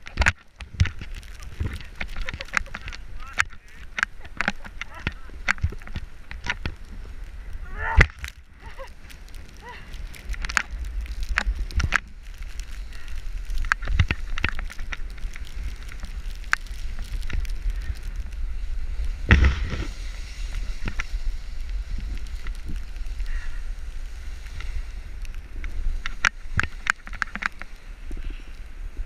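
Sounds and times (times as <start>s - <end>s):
sharp clicks and knocks: 0.0s - 6.8s
snowboard scraping over snow: 0.0s - 29.0s.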